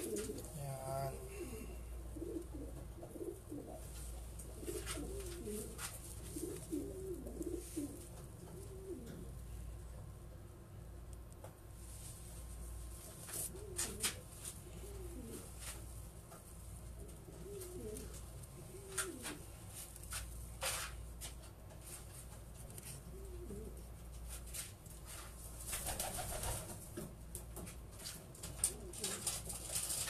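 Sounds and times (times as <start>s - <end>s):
pigeons cooing: 0.0s - 9.6s, 13.3s - 15.8s, 17.0s - 19.6s, 23.0s - 23.9s, 28.5s - 30.0s.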